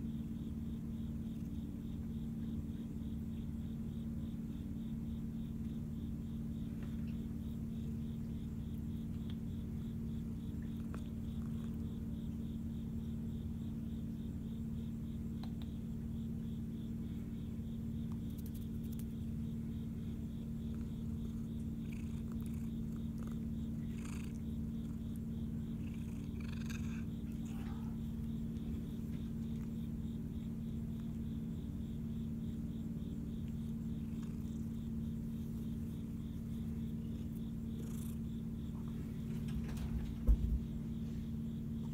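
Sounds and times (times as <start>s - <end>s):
cat purring: 8.3s - 13.4s, 17.9s - 40.7s.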